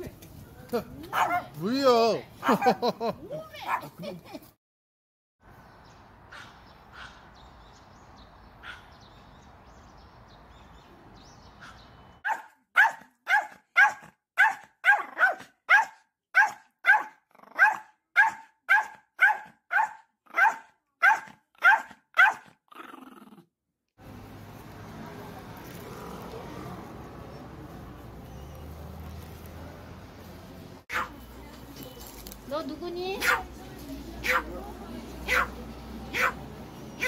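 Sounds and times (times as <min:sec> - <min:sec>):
small dog barking: 0:01.1 - 0:01.6, 0:08.6 - 0:08.9, 0:11.6 - 0:22.5, 0:30.9 - 0:31.2, 0:33.2 - 0:33.5, 0:34.2 - 0:34.5, 0:35.2 - 0:36.5.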